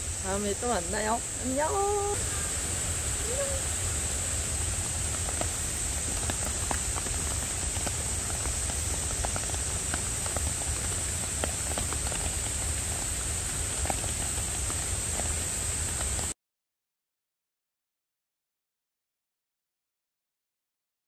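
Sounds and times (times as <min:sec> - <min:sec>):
steady high hiss: 0:00.0 - 0:16.4
rain pattering on wooden deck: 0:00.2 - 0:16.4.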